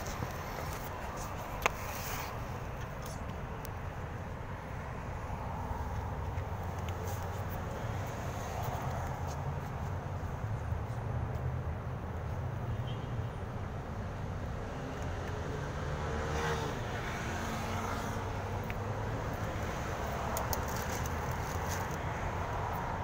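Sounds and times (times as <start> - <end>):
road noise rumble: 0.0 - 23.0
vehicle passing by: 14.7 - 23.0.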